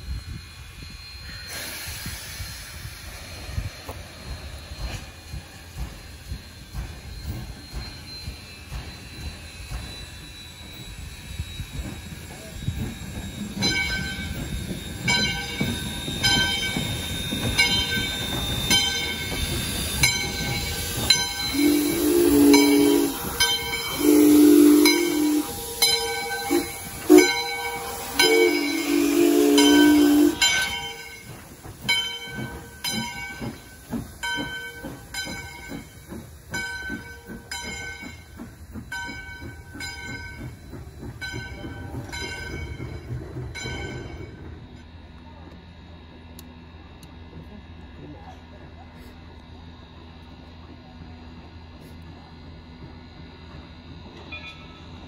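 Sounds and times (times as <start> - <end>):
steam hissing: 0.0 - 44.7
locomotive exhaust chuffs: 0.1 - 54.3
locomotive bell ringing: 3.3 - 44.8, 54.1 - 55.0
steam locomotive whistle blasts: 18.5 - 31.1.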